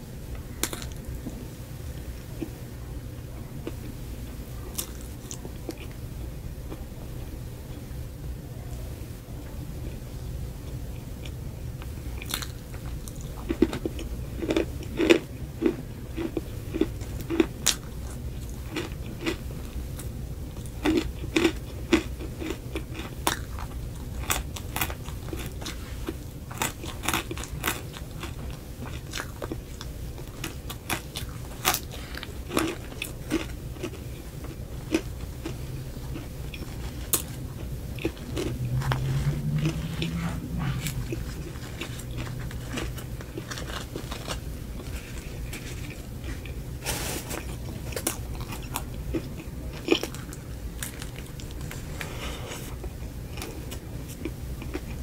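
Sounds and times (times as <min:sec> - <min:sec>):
wet chewing: 0:20.0 - 0:46.6, 0:47.4 - 0:55.0
low rising hum: 0:34.6 - 0:46.8.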